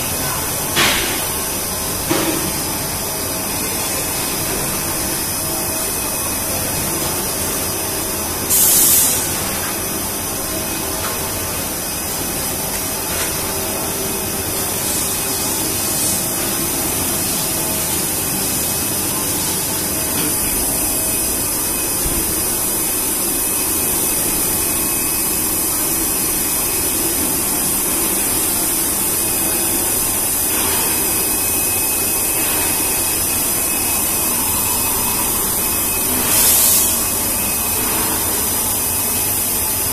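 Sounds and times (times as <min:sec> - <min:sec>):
loud burst of hiss: 0:08.5 - 0:09.4, 0:36.2 - 0:37.2.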